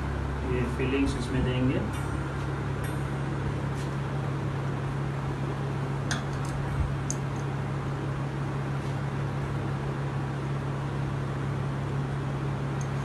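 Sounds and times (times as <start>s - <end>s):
fan-like machine humming: 0.0s - 13.0s.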